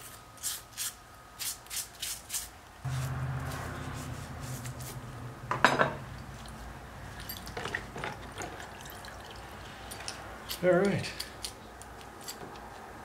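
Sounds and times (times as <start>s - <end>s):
low steady hum: 2.6s - 12.6s.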